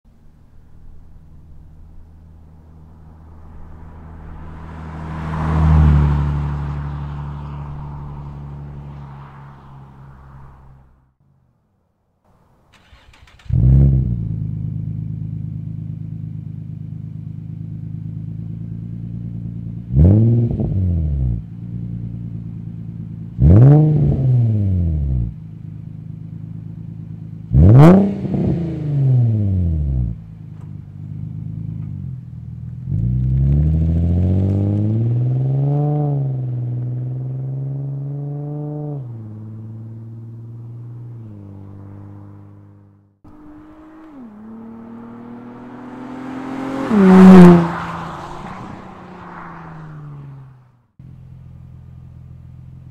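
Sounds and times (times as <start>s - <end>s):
car pulling away: 0.1s - 11.0s, 12.5s - 52.9s
car engine idling: 0.1s - 11.5s, 12.3s - 19.9s, 21.4s - 23.4s, 25.3s - 27.7s, 30.1s - 33.4s, 39.2s - 52.9s
car engine starting: 0.1s - 11.5s, 12.3s - 52.9s.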